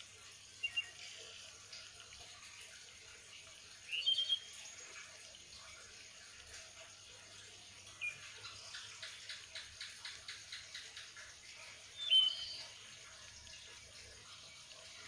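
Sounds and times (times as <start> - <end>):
faint steady hiss: 0.0 - 15.0
bird chirps: 3.9 - 4.5, 12.0 - 12.8.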